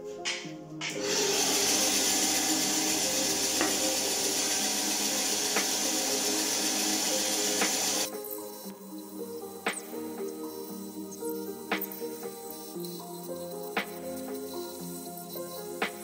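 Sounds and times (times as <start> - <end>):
bandsaw running: 1.0 - 8.1.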